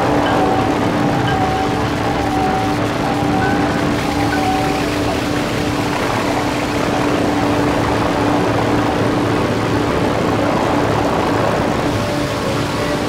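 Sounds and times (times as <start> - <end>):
electronic noise drone: 0.0 - 13.0.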